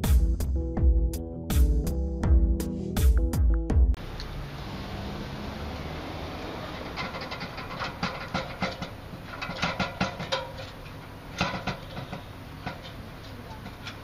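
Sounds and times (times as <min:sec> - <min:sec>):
boots clanking on metal ladder: 0:06.9 - 0:14.0.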